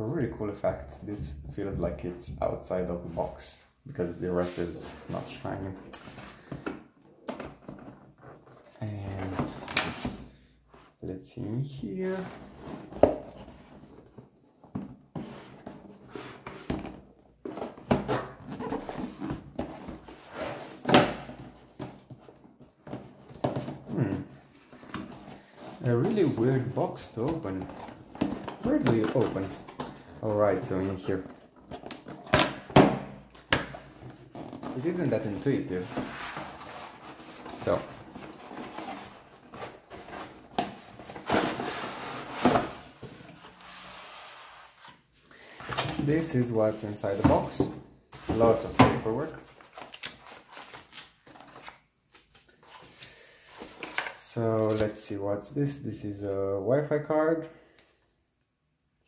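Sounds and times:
cardboard box scraping on table: 0:35.8 - 0:40.4, 0:41.0 - 0:44.9.

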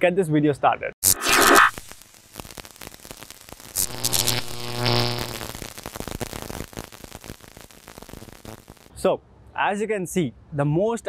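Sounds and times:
electric crackling: 0:01.0 - 0:08.9
low synthesized buzzing tone: 0:03.0 - 0:08.9.

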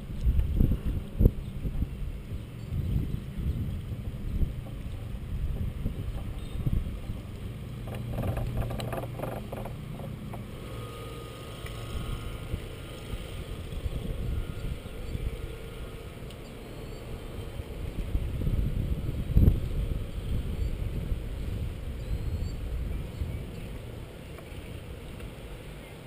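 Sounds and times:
faint steady hum: 0:00.0 - 0:26.0
wind buffeting microphone: 0:00.0 - 0:26.0
knocks and clicks: 0:07.1 - 0:10.5.

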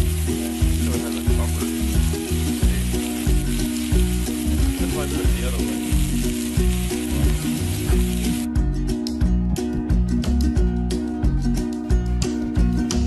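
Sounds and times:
chicken sizzling on griddle: 0:00.0 - 0:08.5
music with bass beat: 0:00.0 - 0:13.0.

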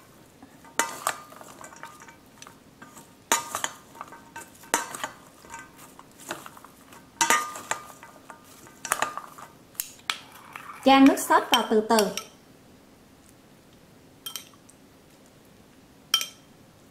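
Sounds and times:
utensils clinking in metal bowl: 0:00.5 - 0:09.6, 0:10.3 - 0:12.4, 0:14.2 - 0:14.6, 0:16.2 - 0:16.5.

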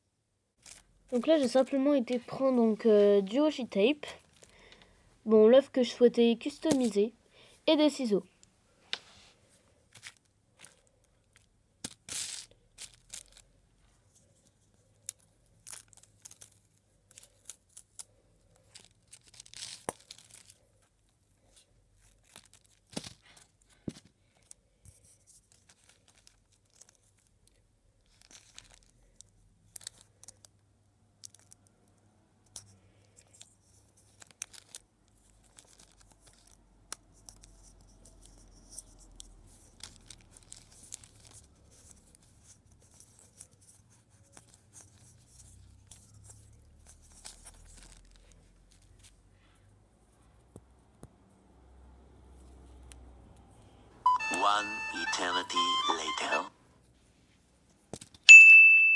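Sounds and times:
tape crinkles and clicks: 0:00.6 - 0:02.2, 0:09.9 - 0:49.2
tape peeling and tearing: 0:09.9 - 0:13.5, 0:15.0 - 0:20.6, 0:25.3 - 0:30.4, 0:33.4 - 0:49.1.

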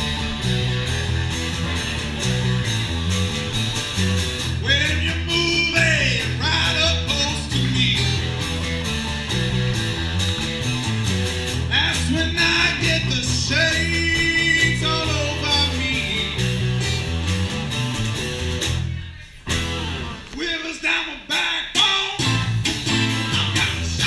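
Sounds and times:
rock band playing: 0:00.0 - 0:20.4, 0:22.1 - 0:24.0
man singing: 0:04.6 - 0:08.4, 0:11.7 - 0:16.6, 0:19.8 - 0:24.0.

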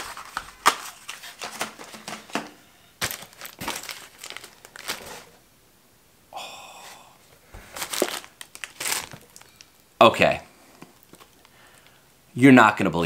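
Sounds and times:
plastic bags crinkling: 0:00.0 - 0:05.4, 0:07.6 - 0:09.8, 0:10.8 - 0:11.9.

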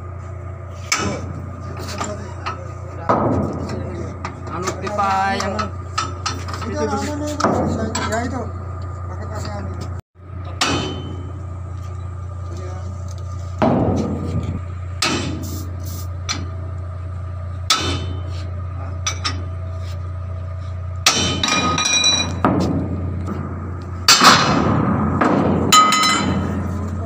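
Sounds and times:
steady low hum: 0:00.0 - 0:27.0
hammer striking steel: 0:00.9 - 0:01.3, 0:10.5 - 0:11.4, 0:15.0 - 0:15.7, 0:17.7 - 0:18.3, 0:21.0 - 0:26.7.

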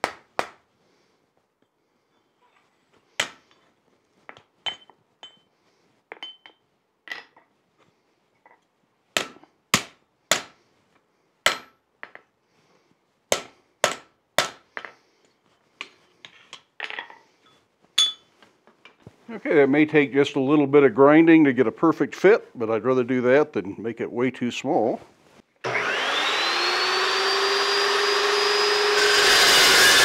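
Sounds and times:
light metal clinks: 0:17.4 - 0:18.3
hammer striking hot steel on anvil: 0:18.0 - 0:18.2.

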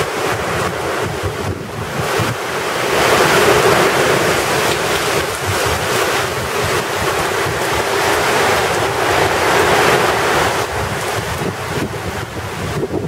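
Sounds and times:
heavy rain pouring: 0:00.0 - 0:13.0
strong wind: 0:00.0 - 0:13.0.

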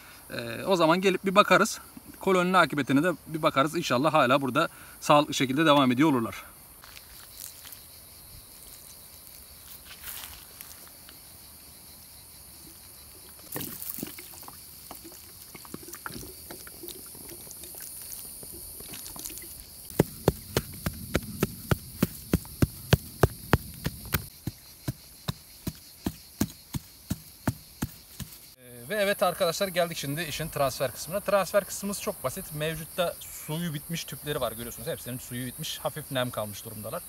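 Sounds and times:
cicadas buzzing: 0:00.0 - 0:37.0
water pouring onto soil: 0:13.5 - 0:21.4
hands patting wet soil: 0:13.5 - 0:28.5.

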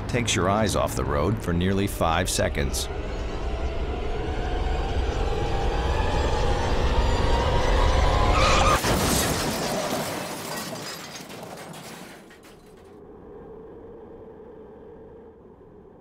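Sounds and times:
car crash with glass shattering: 0:08.3 - 0:12.9.

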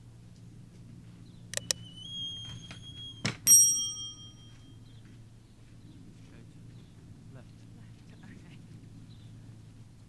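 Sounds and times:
mouse clicks: 0:01.6 - 0:01.8
small bell ding: 0:02.1 - 0:04.8.

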